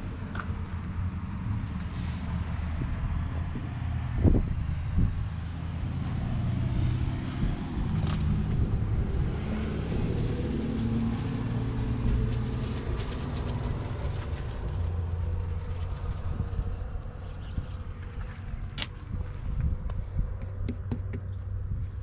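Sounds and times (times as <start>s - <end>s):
engine running at low revs: 0.0s - 22.0s
rustling: 9.8s - 16.7s.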